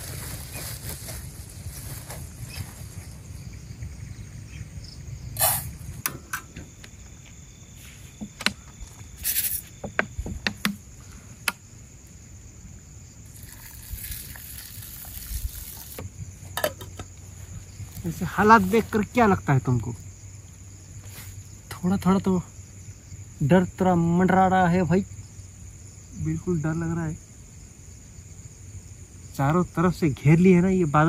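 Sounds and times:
pot knocks and clinks: 0:16.6 - 0:17.1.

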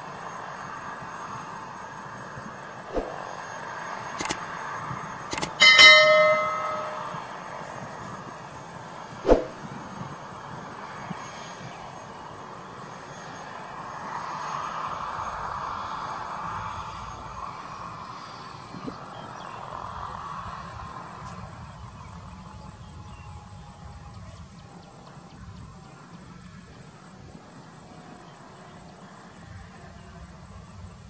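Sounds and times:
helicopter turbine and rotor: 0:00.0 - 0:24.0
sharp metallic clanks: 0:04.2 - 0:04.4, 0:05.3 - 0:07.3.

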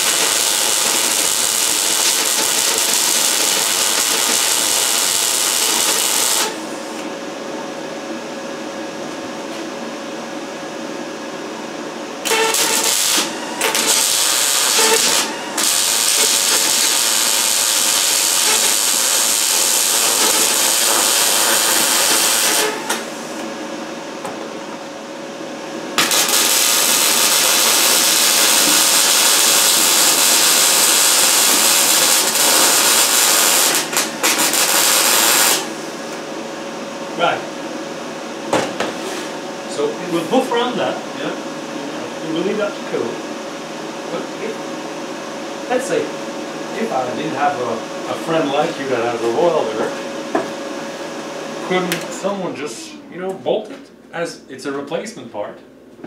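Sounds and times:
welder hissing: 0:00.0 - 0:06.8, 0:12.2 - 0:23.4, 0:26.0 - 0:35.8.

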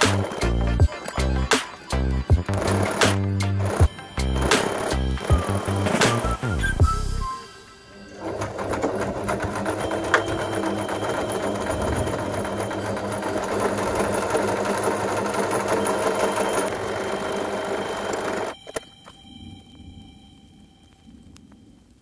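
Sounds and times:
sewing machine running: 0:00.0 - 0:01.5, 0:02.3 - 0:06.5, 0:08.0 - 0:18.6.

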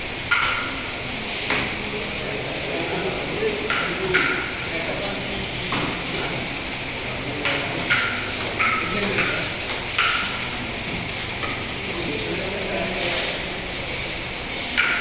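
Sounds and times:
table tennis ball hits: 0:00.3 - 0:00.8, 0:03.7 - 0:04.4, 0:07.4 - 0:10.4, 0:14.8 - 0:15.0.

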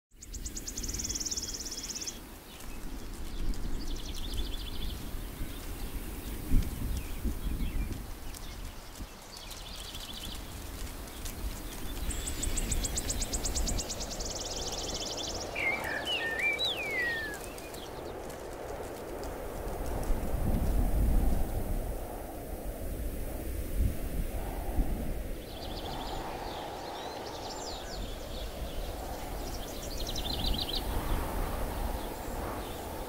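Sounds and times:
birds trilling: 0:12.1 - 0:17.8
swooping whistled bird notes: 0:12.1 - 0:17.8.

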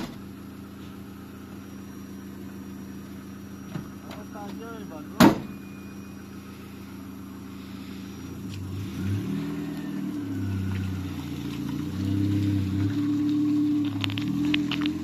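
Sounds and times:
pickup truck engine revving: 0:06.3 - 0:15.0.

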